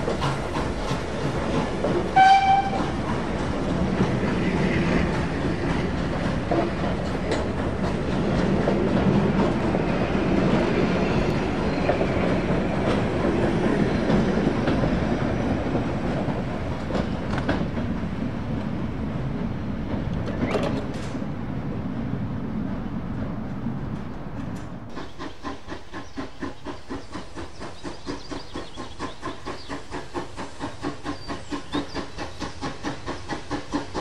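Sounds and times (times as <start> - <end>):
wheels clicking over rail joints: 0.0 - 21.3
train coaches rumbling past: 0.0 - 34.0
locomotive whistle blast: 2.2 - 2.9.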